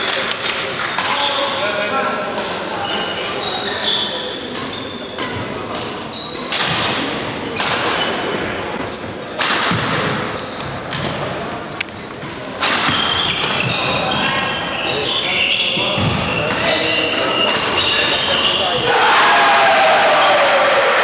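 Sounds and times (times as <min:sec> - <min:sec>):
shoe squeaks: 0:02.8 - 0:05.3, 0:06.0 - 0:06.6, 0:08.8 - 0:09.4, 0:10.3 - 0:11.0, 0:11.8 - 0:18.9.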